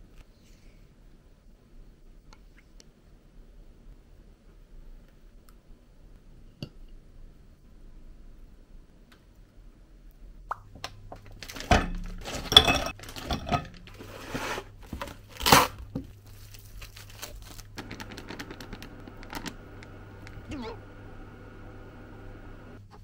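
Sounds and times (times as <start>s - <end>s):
plastic packaging rustling and tearing: 11.2s - 20.5s
dishes clinking on counter: 11.7s - 13.8s.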